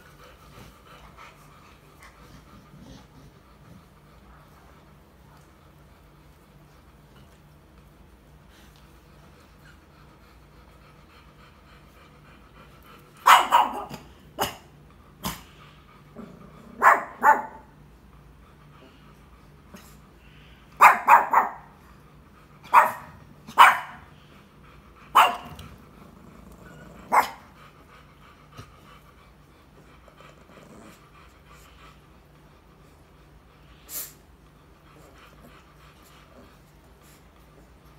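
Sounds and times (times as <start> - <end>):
puppy barking: 13.2 - 14.6, 16.8 - 17.7, 20.8 - 21.7, 22.7 - 24.0, 25.1 - 25.6, 27.1 - 27.4.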